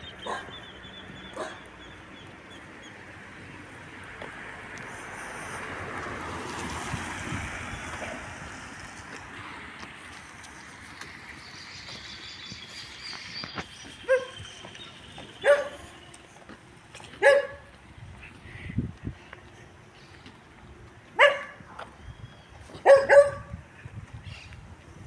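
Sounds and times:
dog barking: 0:00.2 - 0:00.6, 0:01.3 - 0:01.7, 0:14.0 - 0:14.4, 0:15.4 - 0:15.9, 0:17.2 - 0:17.7, 0:21.2 - 0:21.6, 0:22.8 - 0:23.5.

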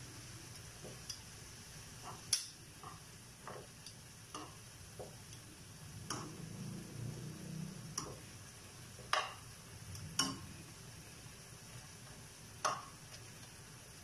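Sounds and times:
faint sizzle of frying meat: 0:00.0 - 0:14.0
metal tongs clacking on frying pan: 0:00.9 - 0:01.2, 0:02.0 - 0:05.4, 0:06.1 - 0:06.4, 0:07.9 - 0:08.2, 0:09.1 - 0:10.5.

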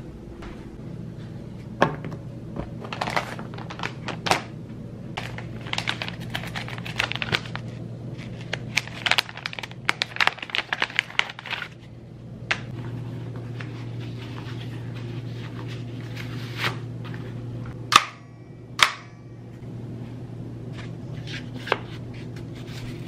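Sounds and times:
plastic bag crinkling: 0:02.8 - 0:04.5, 0:05.2 - 0:11.9.

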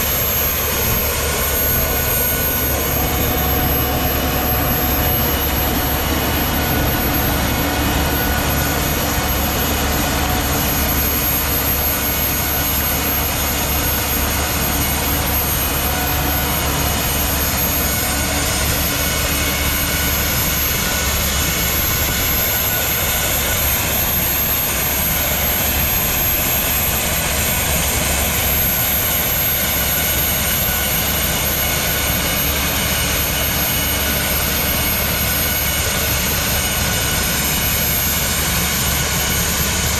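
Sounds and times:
gas turbine running with high whine: 0:00.0 - 0:39.9.

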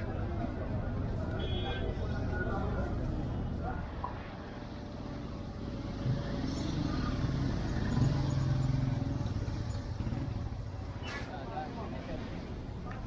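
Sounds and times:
street noise: 0:00.0 - 0:13.0.

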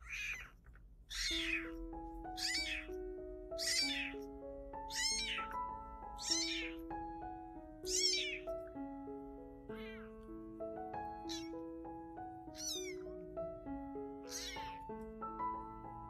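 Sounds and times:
kittens mewing: 0:00.0 - 0:06.9, 0:07.8 - 0:08.6, 0:09.6 - 0:10.2, 0:11.2 - 0:11.6, 0:12.4 - 0:13.3, 0:14.2 - 0:14.9
background music with simple melody: 0:01.1 - 0:16.0.

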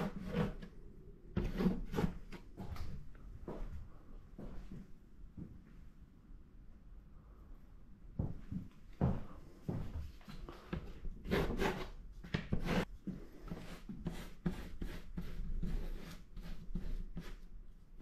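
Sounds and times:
brush scrubbing paint onto paper: 0:01.4 - 0:02.5, 0:11.2 - 0:17.5.

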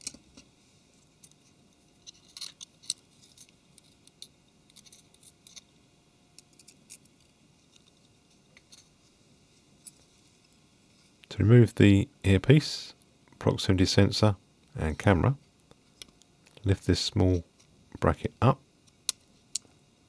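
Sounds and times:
small parts clicking and scratching: 0:00.0 - 0:09.0.

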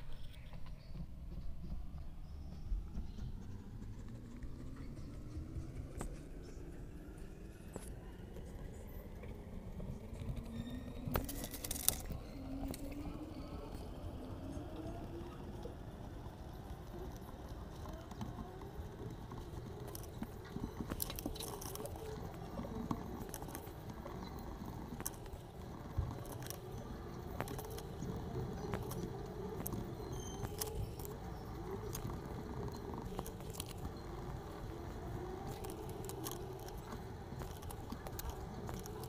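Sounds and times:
low background noise: 0:00.0 - 0:39.0
pencils clicking and tapping: 0:11.1 - 0:13.8, 0:15.6 - 0:39.0.

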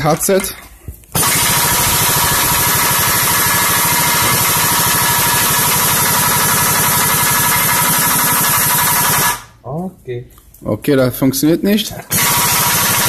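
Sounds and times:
pneumatic impact wrench hammering: 0:01.1 - 0:09.5, 0:12.1 - 0:13.0.

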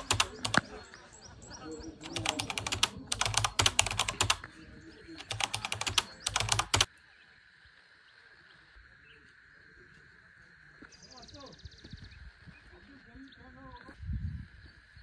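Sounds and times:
rapid dense clicking: 0:00.0 - 0:00.7, 0:02.0 - 0:04.4, 0:05.2 - 0:06.9.

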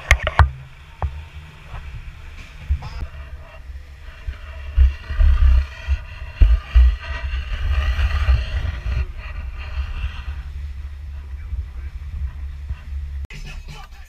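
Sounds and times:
wind buffeting microphone: 0:00.0 - 0:13.3.

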